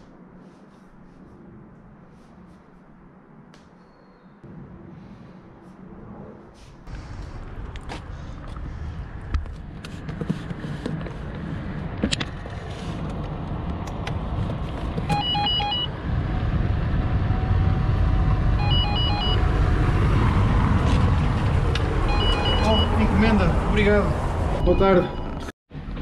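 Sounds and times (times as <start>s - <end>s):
road vehicle rumble: 4.4s - 26.0s
intercom electronic beeps: 15.1s - 15.9s, 22.1s - 23.1s, 24.6s - 25.5s.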